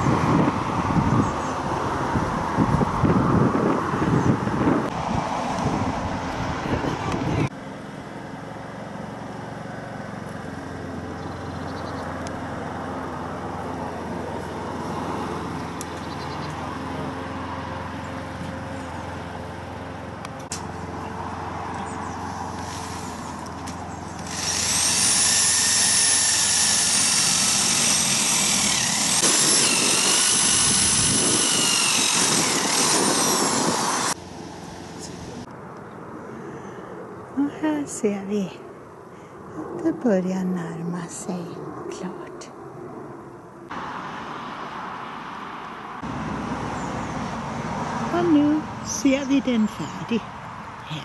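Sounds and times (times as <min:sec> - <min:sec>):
power tool whining: 0:22.1 - 0:34.2.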